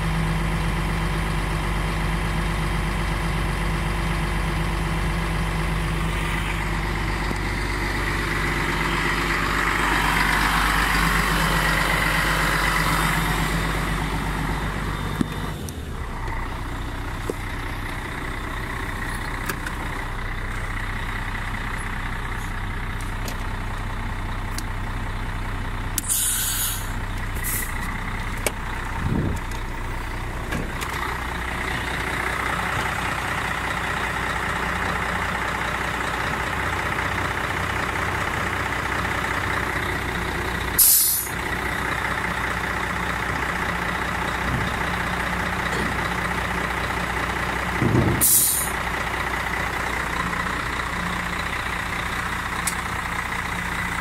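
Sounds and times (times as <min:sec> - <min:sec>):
diesel truck engine running: 0:00.0 - 0:54.0
compressed air hisses: 0:26.0 - 0:27.7, 0:48.2 - 0:48.7.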